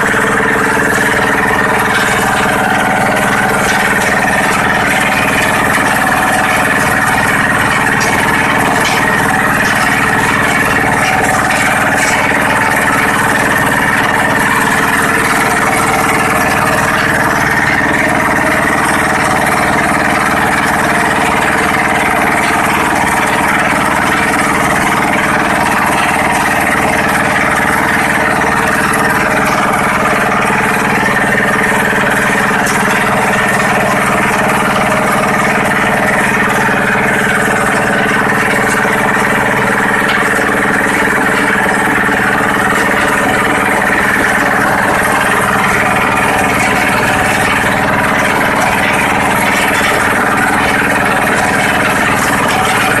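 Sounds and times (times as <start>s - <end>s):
machine drone: 0.0s - 53.0s
stone rattling on vibrating screen: 0.0s - 53.0s.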